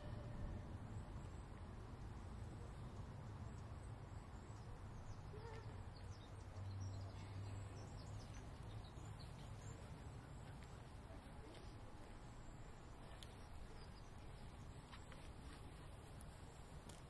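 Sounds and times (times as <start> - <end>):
low steady rumble: 0.0 - 5.4
small birds chirping: 2.6 - 17.0.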